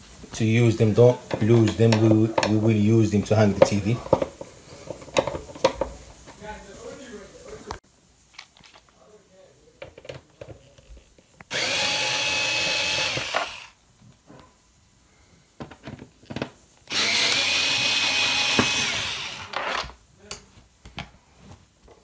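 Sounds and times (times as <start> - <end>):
electric screwdriver whining: 11.5 - 13.8, 16.9 - 19.9.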